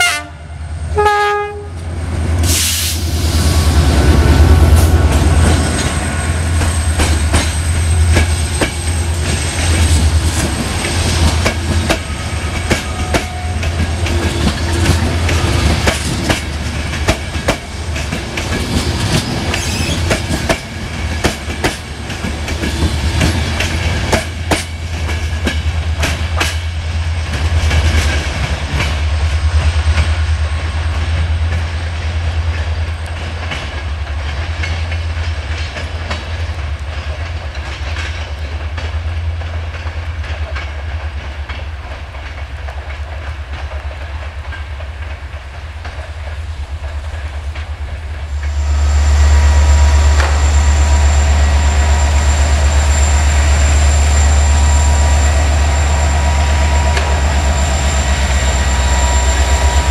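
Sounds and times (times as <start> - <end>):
diesel locomotive idling: 0.0 - 37.7, 38.4 - 59.9
train wheels clicking over rail joints: 1.8 - 59.9
thin high whine: 48.3 - 59.9.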